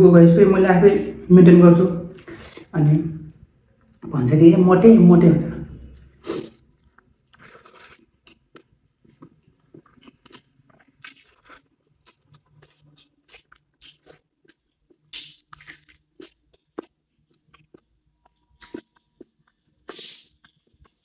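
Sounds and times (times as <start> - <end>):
person chewing crunchy food: 5.8 - 21.0
wet mouth clicks: 12.1 - 21.0.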